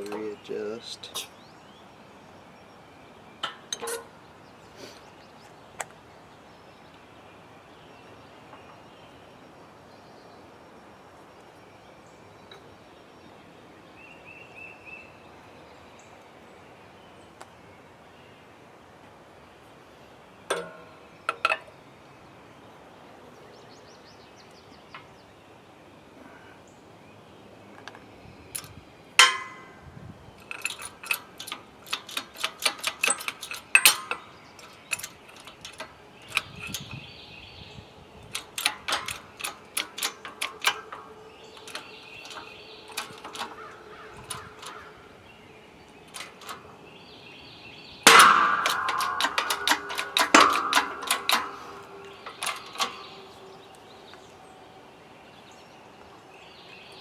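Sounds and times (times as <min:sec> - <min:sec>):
hydraulic press metallic clicks: 0:03.4 - 0:04.2, 0:20.5 - 0:21.7, 0:28.6 - 0:29.8, 0:30.4 - 0:37.2, 0:38.2 - 0:45.2, 0:45.8 - 0:46.8, 0:48.0 - 0:54.2.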